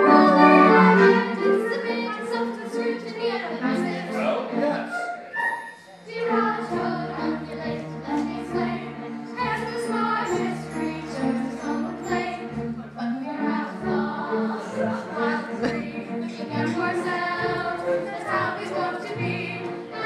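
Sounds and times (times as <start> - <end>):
group of voices singing: 0.0 - 5.1, 6.0 - 20.0
instrumental accompaniment: 0.0 - 20.0.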